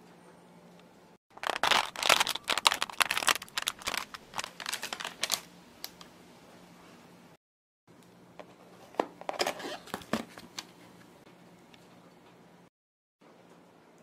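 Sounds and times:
plastic film wrap crinkling: 1.3s - 5.5s.

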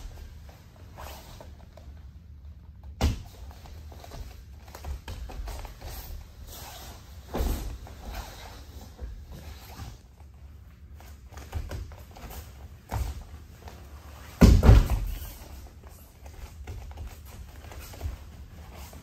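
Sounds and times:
bare feet shuffling on mats: 0.0s - 19.0s
heavy thumps on mats: 14.2s - 15.4s.

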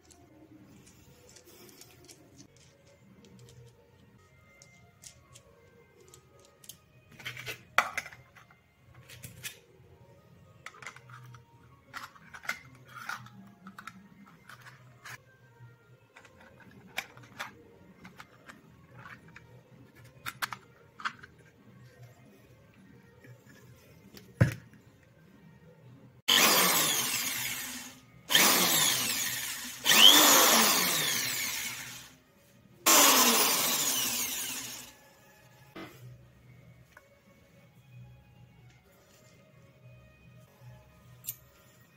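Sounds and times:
electric drill with cut-off disc whining: 26.3s - 32.1s, 32.9s - 35.0s.

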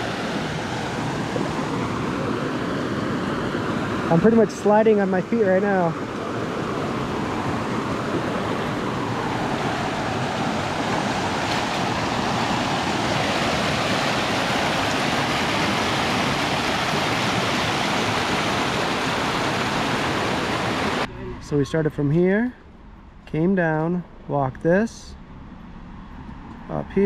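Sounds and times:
waterfall rushing over rocks: 0.0s - 21.1s.

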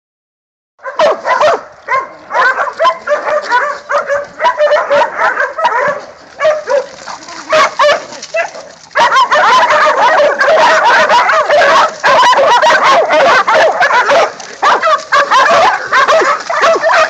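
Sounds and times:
dogs barking and yipping: 0.8s - 17.0s.

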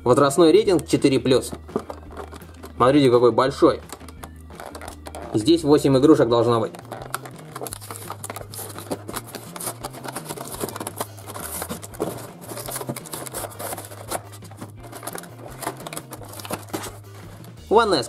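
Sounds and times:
plastic packaging crinkling: 1.4s - 2.8s, 3.9s - 5.5s, 6.6s - 17.6s.

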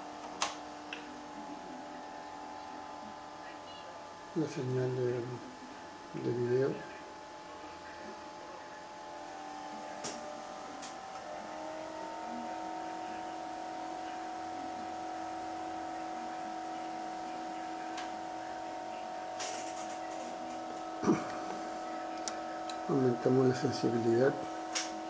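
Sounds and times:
electronics humming and whirring: 0.0s - 25.0s.

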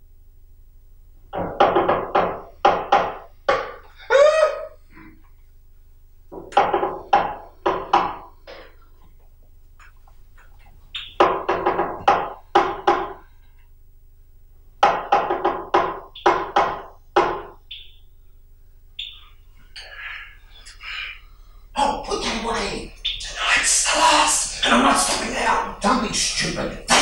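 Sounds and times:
repeated knocks: 1.3s - 4.0s, 6.3s - 13.3s, 14.8s - 17.9s.

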